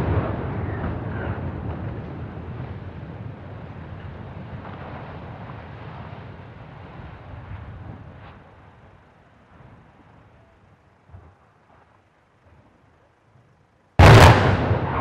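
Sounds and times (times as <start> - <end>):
deep rumble of tower collapsing: 0.0 - 5.9, 14.0 - 15.0
echo of blast charges: 14.0 - 15.0.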